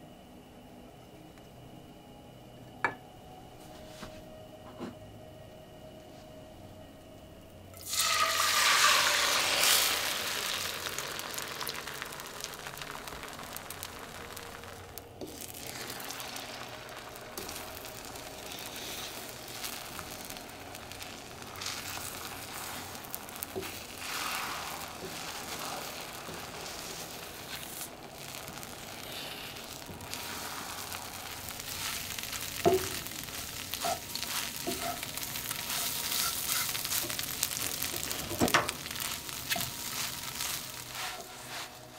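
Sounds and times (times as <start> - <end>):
eggs sizzling in oil: 7.8 - 41.9
spatula knocking and scraping pan: 33.8 - 35.0.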